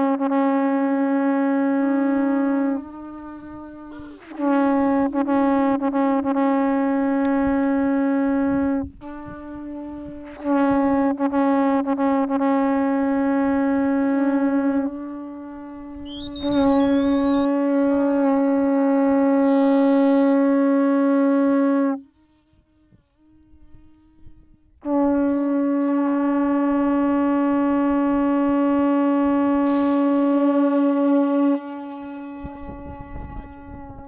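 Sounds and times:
horn blasts on low note: 0.0 - 34.0.

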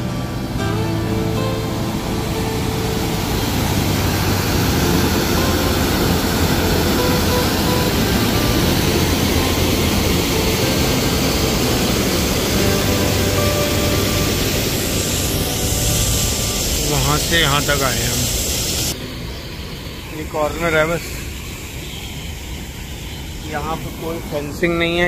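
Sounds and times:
water rushing over a weir: 0.0 - 19.0.

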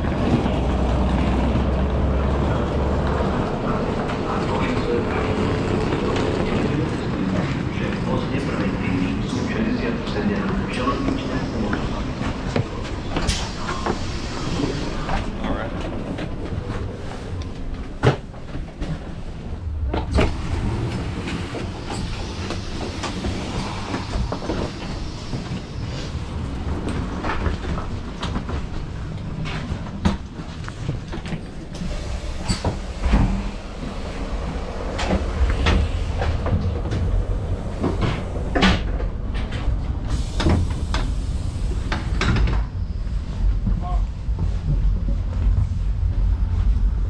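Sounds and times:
railcar low rumble: 0.0 - 47.0.

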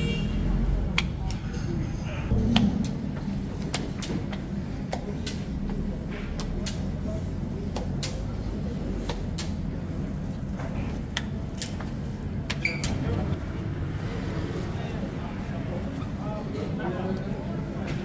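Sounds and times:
low machine hum: 0.5 - 12.5.

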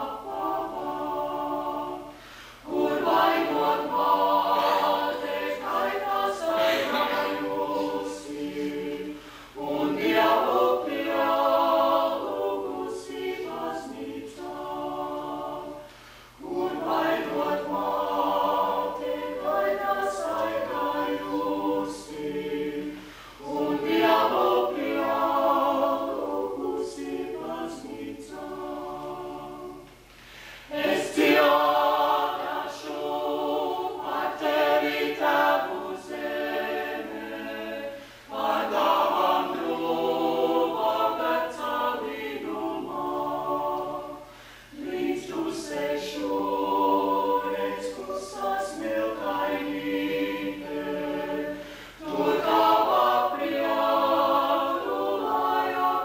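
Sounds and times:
vocal ensemble singing a cappella: 0.0 - 56.0.

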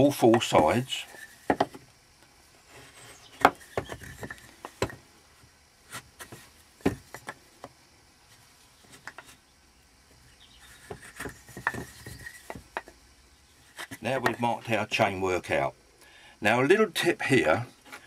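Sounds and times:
tool and wood block knocking: 1.1 - 1.8, 3.3 - 5.0, 5.9 - 7.7, 10.7 - 13.0, 13.7 - 14.5.

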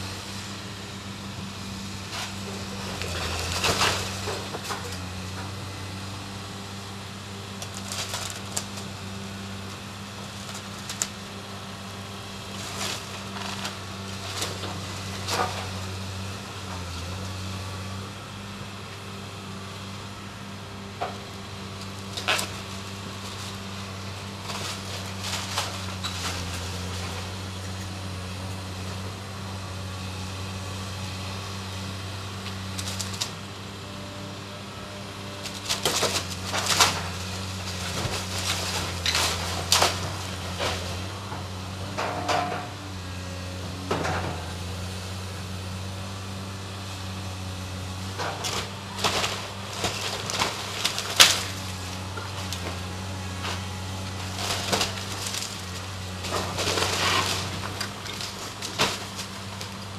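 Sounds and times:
excavator engine running: 0.0 - 59.9
timber cracking and crashing: 2.9 - 5.0, 7.6 - 8.9, 22.1 - 27.1, 35.4 - 41.0, 48.2 - 59.9
falling debris: 35.7 - 40.9, 48.4 - 53.6, 54.2 - 59.9.

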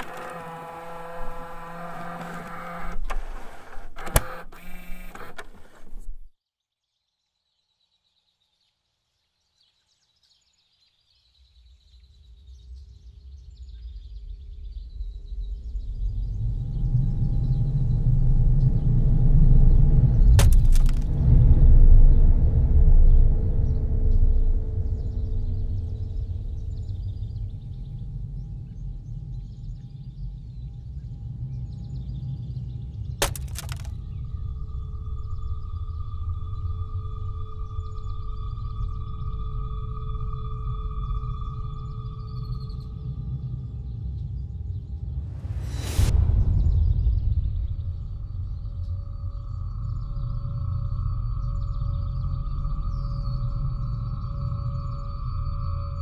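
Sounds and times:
mechanical noise: 0.0 - 6.3, 20.4 - 21.2, 33.2 - 33.9
faint music drone: 34.2 - 45.2, 48.4 - 56.0
low rumble: 46.1 - 50.1.

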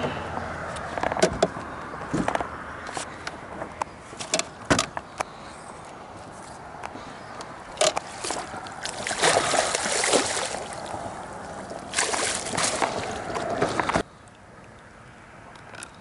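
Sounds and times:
fish splashing in water: 7.6 - 14.1.

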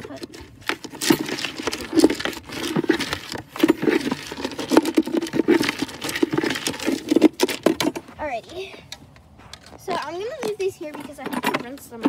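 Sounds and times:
hand stirring feed in plastic bucket: 0.0 - 8.1.

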